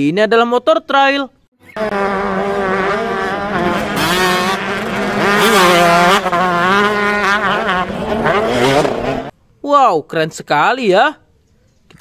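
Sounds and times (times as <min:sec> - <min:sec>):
dirt bike engines revving: 0:01.6 - 0:09.3.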